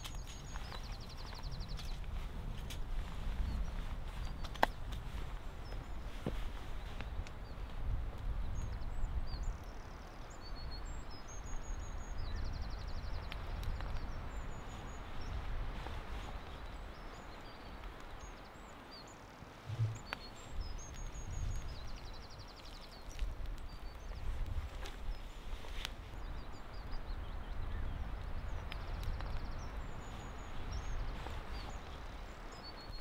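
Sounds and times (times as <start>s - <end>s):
small birds chirping: 0.0s - 33.0s
low uneven rumble: 19.7s - 21.3s.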